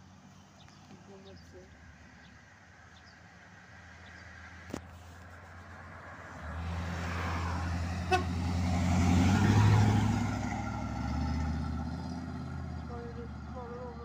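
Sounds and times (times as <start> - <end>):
van driving past: 0.0 - 14.0
short horn toot: 8.1 - 8.4.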